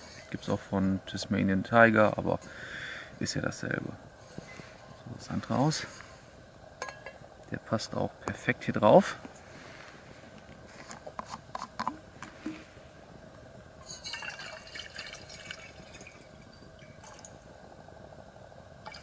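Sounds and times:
water pouring into metal mug: 0:13.8 - 0:17.4.

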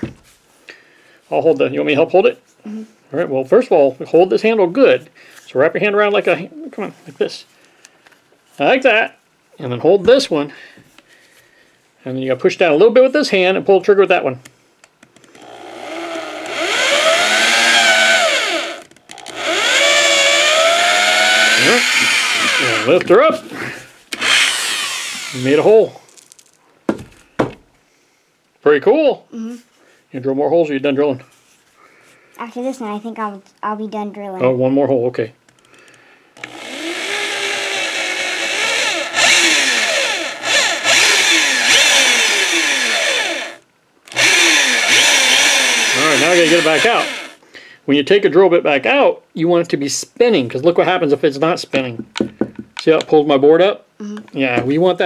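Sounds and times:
electric drill boring into wood: 0:15.4 - 0:23.1, 0:24.1 - 0:25.7, 0:36.4 - 0:47.4.

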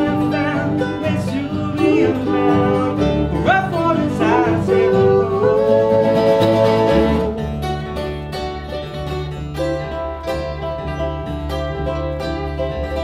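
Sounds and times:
person singing: 0:00.0 - 0:07.4
strummed guitars: 0:00.0 - 0:13.0
upright bass: 0:00.0 - 0:13.0.

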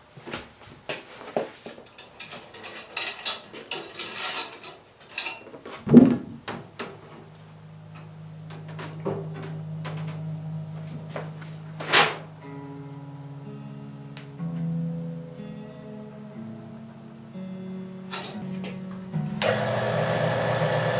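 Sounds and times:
loud thump: 0:05.9 - 0:06.5
low machine hum: 0:06.4 - 0:14.1, 0:16.4 - 0:20.9.

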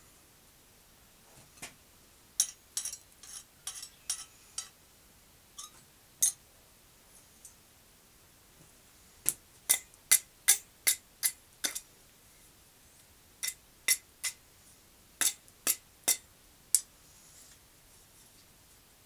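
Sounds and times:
hammer striking iron on anvil: 0:09.7 - 0:11.8, 0:15.2 - 0:16.2.

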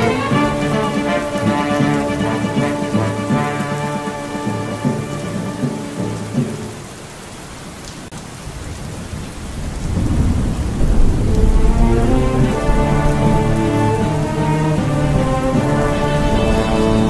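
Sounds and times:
heavy rain: 0:00.0 - 0:17.0
rumble of thunder: 0:08.4 - 0:17.0.

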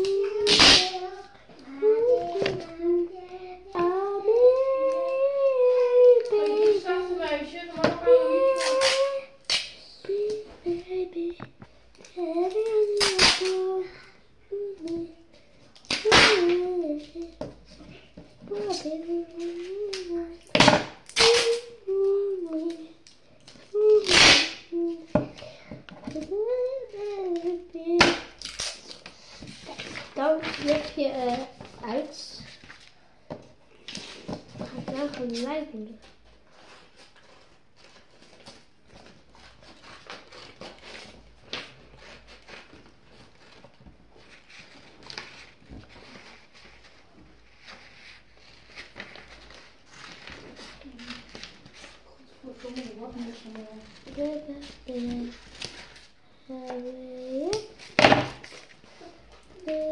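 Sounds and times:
girl humming: 0:00.0 - 0:07.1, 0:08.0 - 0:11.4
paper rustling and scraping: 0:28.4 - 0:33.0, 0:33.8 - 0:59.9.

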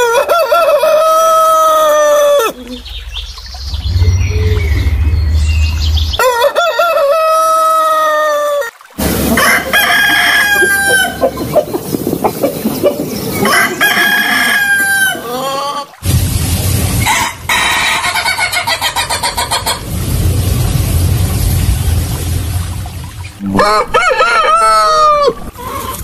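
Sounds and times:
roosters crowing: 0:00.0 - 0:02.6, 0:06.2 - 0:15.9, 0:23.4 - 0:26.0.

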